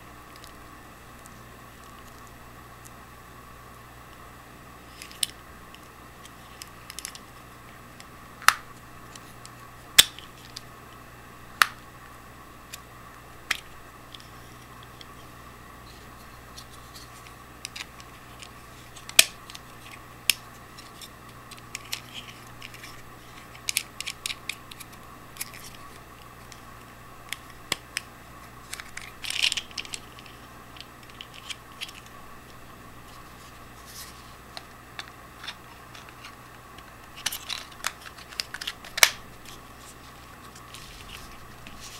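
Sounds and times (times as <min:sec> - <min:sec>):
faint steady hum: 0:00.0 - 0:41.9
scraping rustle: 0:33.0 - 0:34.5, 0:37.1 - 0:41.9.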